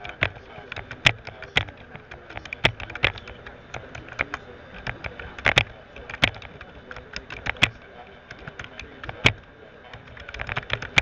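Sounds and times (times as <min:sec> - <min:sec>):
sharp clicks: 0:00.0 - 0:11.0.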